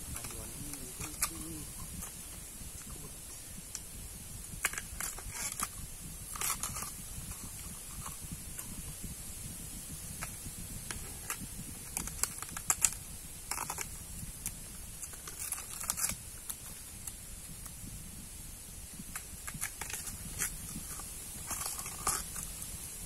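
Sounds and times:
knife peeling bamboo husk: 0:11.0 - 0:17.2.

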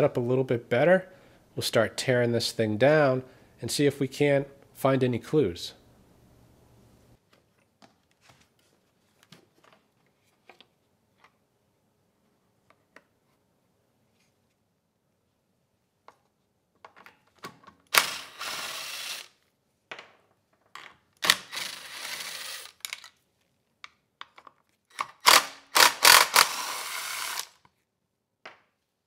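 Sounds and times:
cordless drill spinning: 0:17.9 - 0:19.4, 0:21.2 - 0:23.1, 0:24.9 - 0:27.7.

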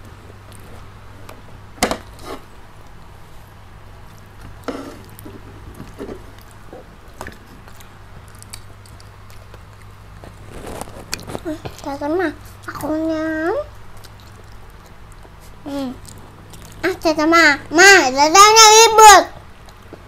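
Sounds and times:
steady low hum: 0:00.0 - 0:20.0
person chewing: 0:04.0 - 0:11.9, 0:13.7 - 0:16.8.

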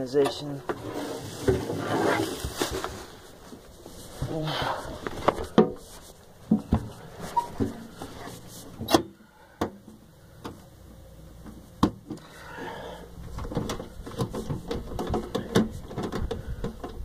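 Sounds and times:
clicks taps and rustling: 0:13.3 - 0:17.0.

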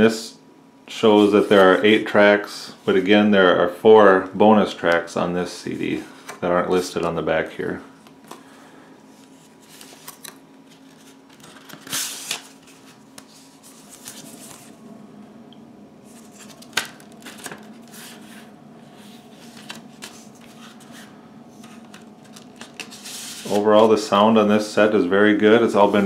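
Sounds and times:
faint hum: 0:00.0 - 0:26.0.

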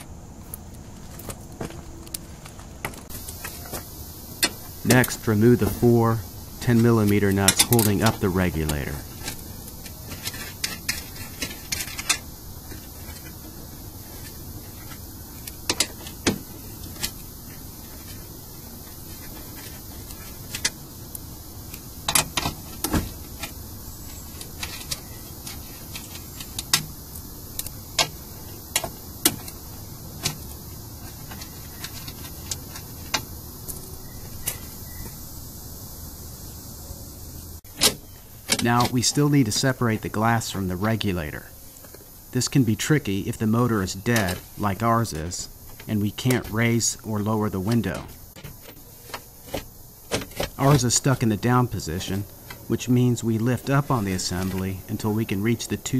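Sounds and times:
steady background hiss: 0:00.0 - 0:55.9.

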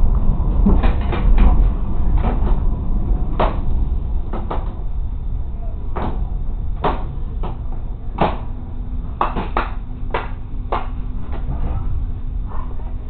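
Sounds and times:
railcar engine idling: 0:00.0 - 0:13.0
sharp knocks and clatters: 0:00.6 - 0:02.6, 0:03.3 - 0:04.8, 0:05.9 - 0:08.6, 0:09.2 - 0:11.9.

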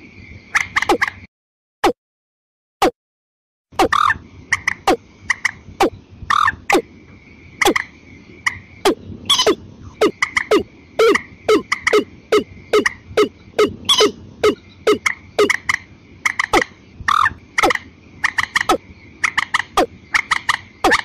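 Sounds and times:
birds calling: 0:03.8 - 0:21.0.

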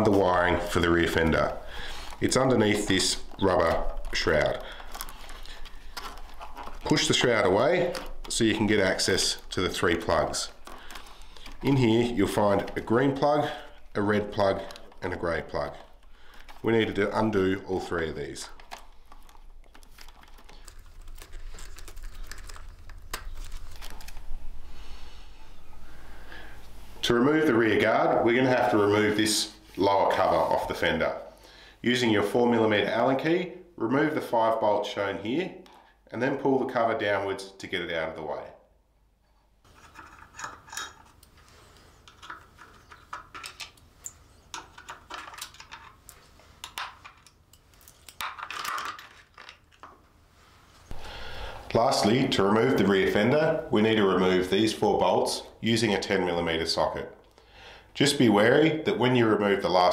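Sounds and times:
wires rustling: 0:00.0 - 0:31.1, 0:39.2 - 0:55.8.

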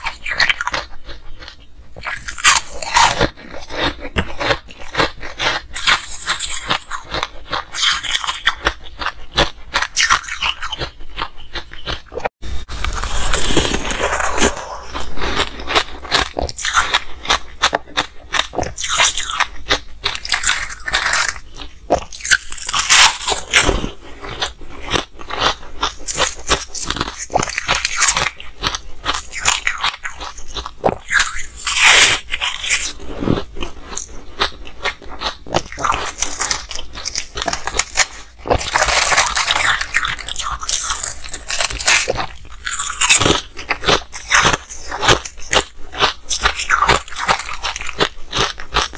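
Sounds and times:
ice being chewed: 0:00.0 - 0:48.9
ice crumbled by hand: 0:12.8 - 0:14.7, 0:35.8 - 0:45.7.

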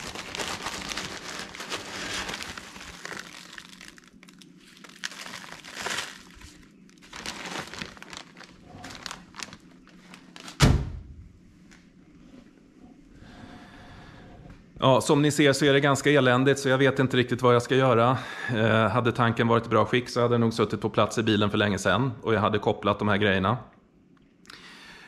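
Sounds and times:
bag of grit crinkling: 0:00.0 - 0:10.7.

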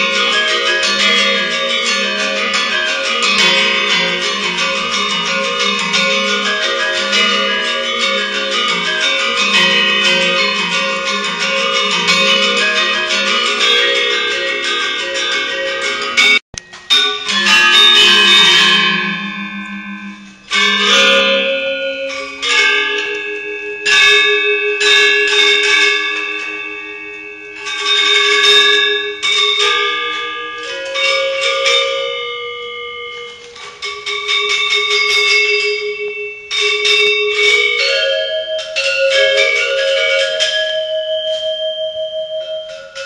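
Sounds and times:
metallophone ensemble playing: 0:00.0 - 0:28.4.

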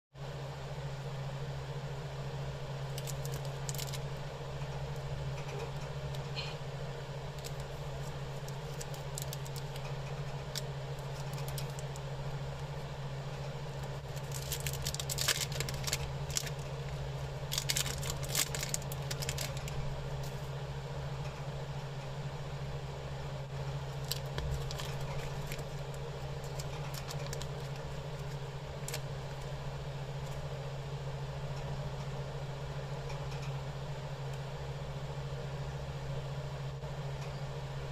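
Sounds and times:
steady low hum: 0:00.2 - 0:37.9
wrapper foil crinkling: 0:02.9 - 0:04.2, 0:07.4 - 0:12.1, 0:13.7 - 0:20.4, 0:23.9 - 0:29.5.

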